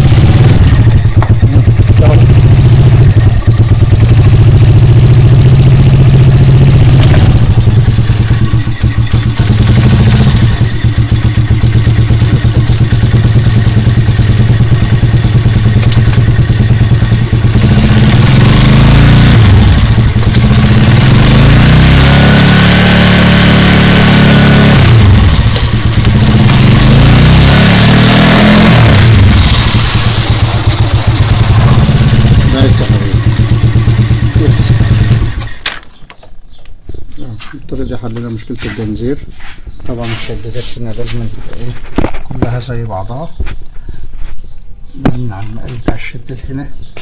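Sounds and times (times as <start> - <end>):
motorcycle engine running: 0.0 - 36.6.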